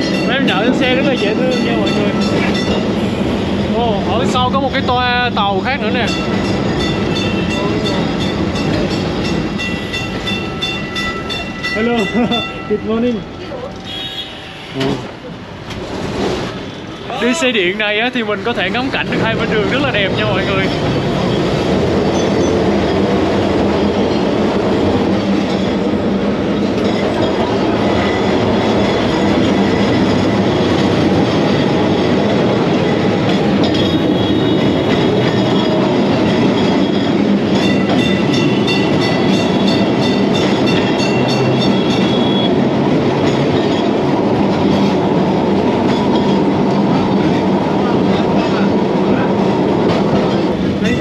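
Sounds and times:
tram rattling and rumbling: 0.0 - 51.0.

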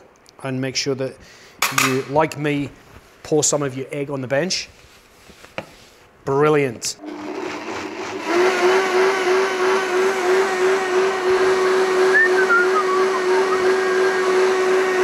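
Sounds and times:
blender running: 7.0 - 15.0.

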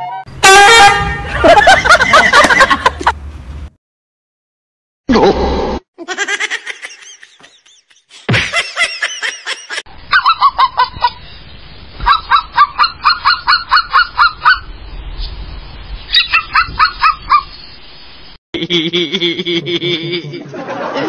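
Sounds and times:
short honking calls: 0.0 - 1.4.

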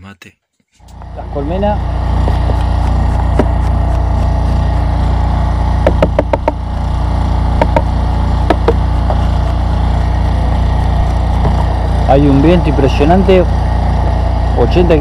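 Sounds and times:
generator engine running: 0.8 - 15.0
sharp knocks: 2.4 - 4.4, 5.8 - 6.6, 7.5 - 9.6.

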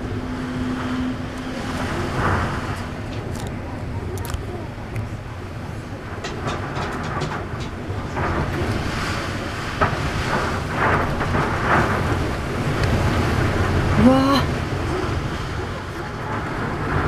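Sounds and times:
wind gusting on microphone: 0.0 - 17.0
sharp clicks and knocks: 6.2 - 8.8.

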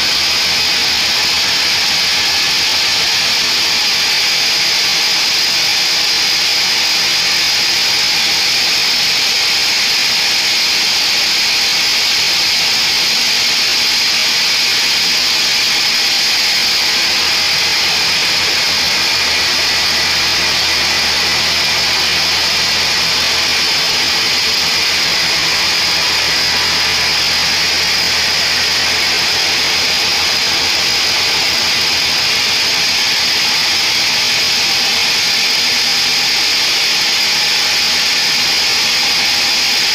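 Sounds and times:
band saw cutting log: 0.0 - 39.9
low hum: 16.9 - 32.4.

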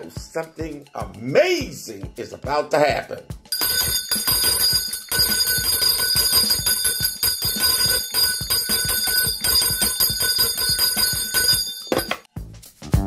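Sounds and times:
bell ringing rapidly: 3.5 - 12.3.

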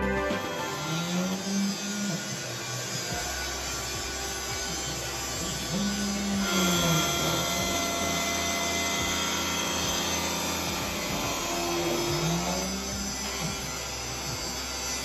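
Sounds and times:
router spindle whine and cutting: 0.0 - 15.0.

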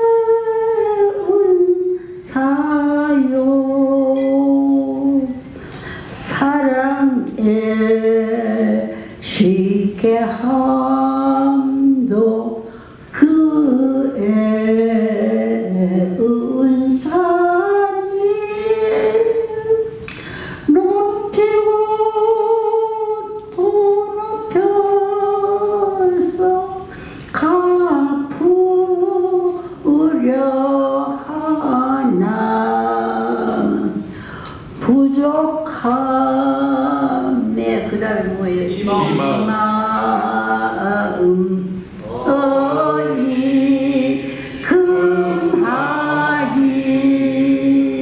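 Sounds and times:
woman singing into microphone: 0.0 - 48.0
man singing along: 38.6 - 40.2.

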